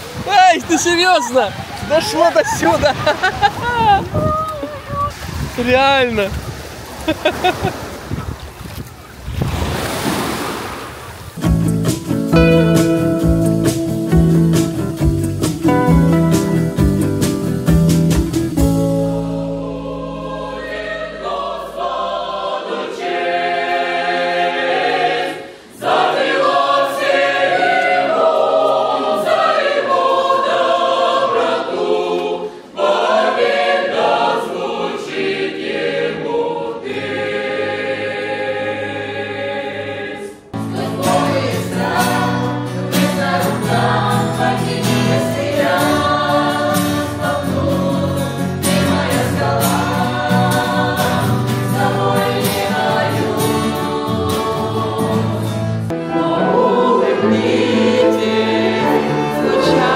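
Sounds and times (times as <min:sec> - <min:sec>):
choir singing a hymn: 0:01.2 - 0:04.3, 0:18.2 - 0:59.9
group singing with acoustic guitars: 0:11.4 - 0:59.9.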